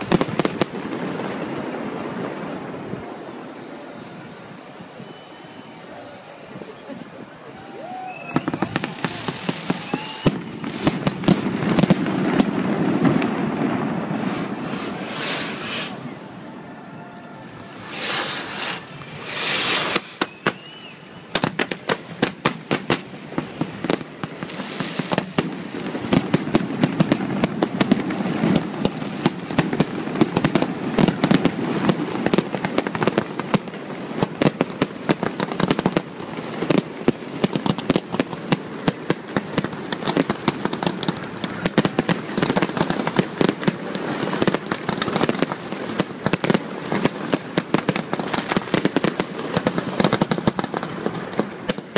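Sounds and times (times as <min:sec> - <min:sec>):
firework bangs and crackles: 0:00.0 - 0:51.9
firework rushing whooshes: 0:08.4 - 0:16.6, 0:17.4 - 0:32.0.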